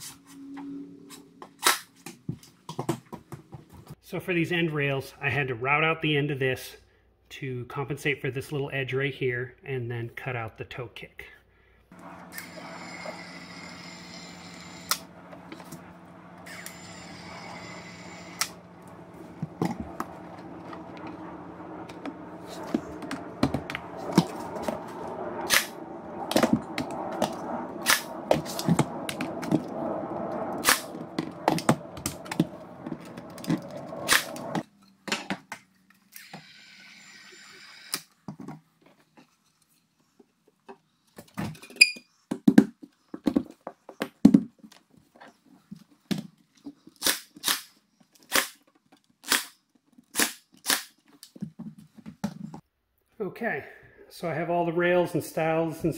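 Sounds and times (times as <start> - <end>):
battery caulk gun whirring: 12.0 - 15.8, 16.4 - 21.1
pin nailer snapping: 49.2 - 51.0.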